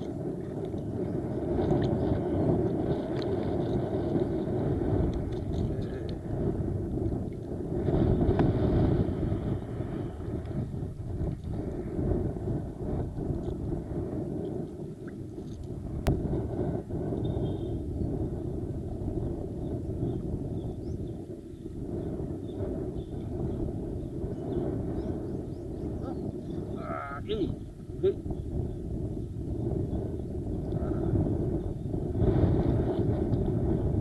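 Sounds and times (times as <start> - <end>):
wind buffeting microphone: 0.0 - 34.0.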